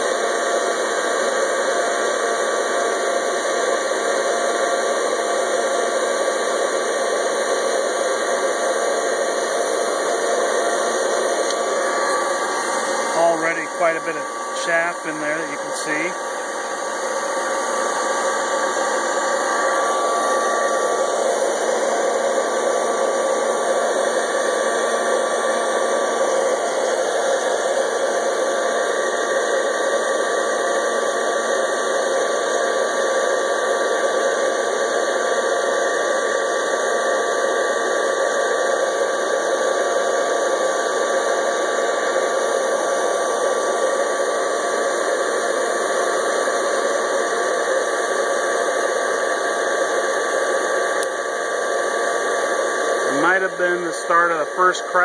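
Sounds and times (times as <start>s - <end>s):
popcorn popper fan blowing: 0.0s - 55.0s.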